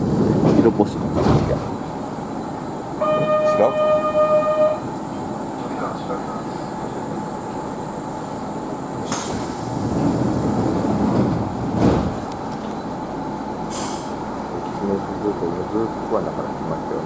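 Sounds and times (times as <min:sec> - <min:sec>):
train wheels rumbling: 0:00.0 - 0:17.0
short hisses: 0:09.0 - 0:09.8, 0:13.7 - 0:14.2.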